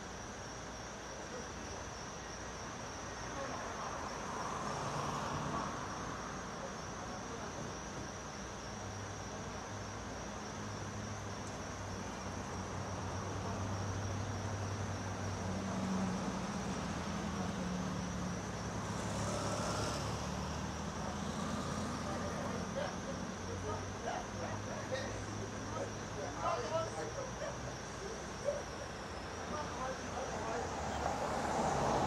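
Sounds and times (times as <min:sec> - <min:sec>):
car engine hum and tyre noise: 0:10.2 - 0:23.7, 0:28.9 - 0:32.0.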